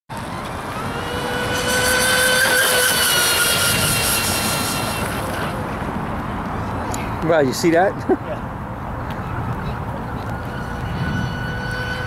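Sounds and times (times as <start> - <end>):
toy boat motor whining: 0.2 - 5.8, 10.0 - 12.0.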